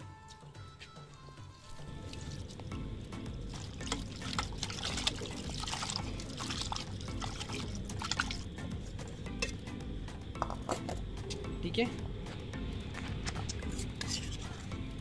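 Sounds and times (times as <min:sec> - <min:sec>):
background music: 0:00.0 - 0:15.0
hands rinsing meat in water: 0:03.4 - 0:08.5
tap water running into pot: 0:03.4 - 0:09.7.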